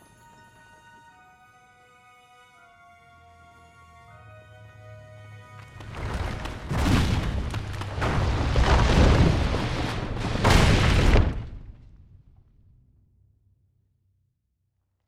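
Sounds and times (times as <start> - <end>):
rumble of falling rock: 5.8 - 12.5.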